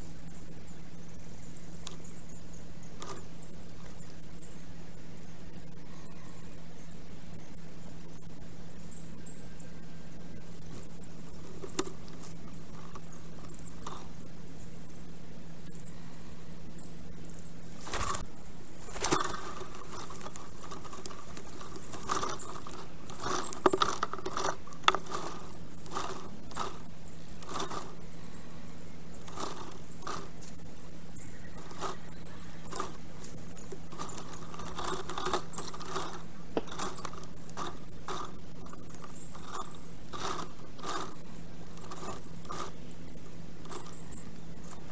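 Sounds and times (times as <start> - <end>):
steady low hum: 0.0 - 44.9
dry sticks clicking and rustling: 11.5 - 14.1, 17.8 - 28.1, 29.1 - 30.5, 31.2 - 44.9.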